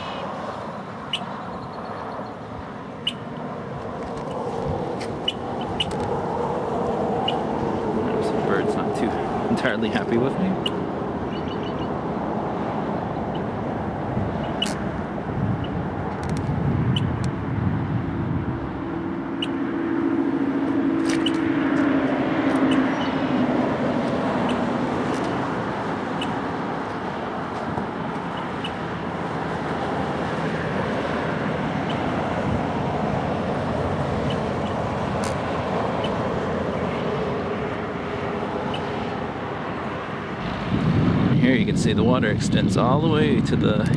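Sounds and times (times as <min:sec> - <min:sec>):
vehicle passing: 0:00.0 - 0:43.8
road traffic: 0:00.0 - 0:43.9
bird alarm chirps: 0:01.1 - 0:02.4, 0:10.6 - 0:11.9.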